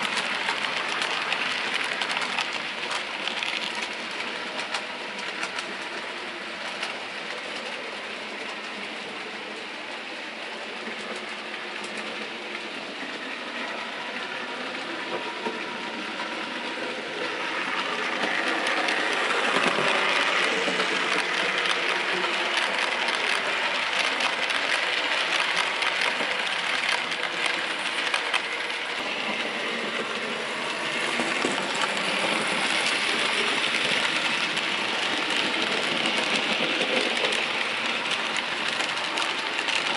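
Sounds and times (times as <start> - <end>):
wheels clicking over rail joints: 0.0 - 7.7, 16.8 - 39.9
model coaches rolling on track: 0.0 - 39.9
model locomotive motor: 0.0 - 39.9.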